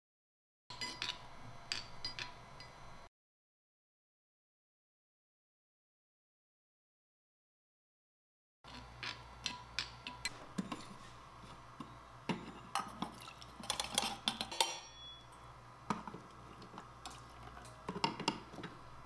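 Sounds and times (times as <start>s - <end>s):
metallic ring: 0.7s - 3.1s, 14.5s - 15.5s
small metal pots clinking: 11.8s - 18.8s.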